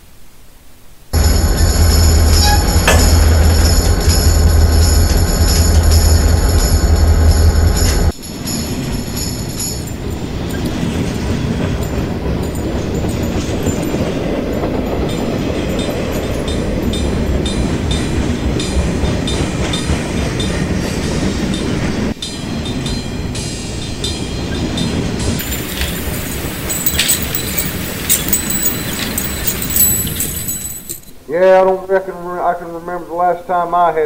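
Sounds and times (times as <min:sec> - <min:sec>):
wheels clattering over rails: 0:01.2 - 0:21.6, 0:25.2 - 0:31.2
train rumbling by: 0:01.2 - 0:31.4.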